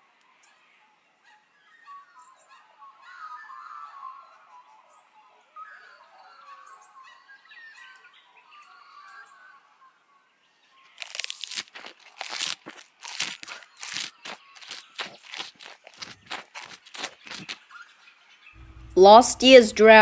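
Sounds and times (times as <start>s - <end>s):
faint bird chirps: 0.3s - 11.0s
crunching of dry plant litter: 10.9s - 17.6s.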